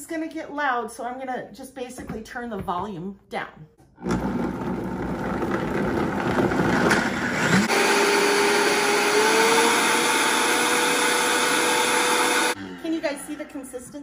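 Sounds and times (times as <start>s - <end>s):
blender motor whining: 4.0s - 14.0s.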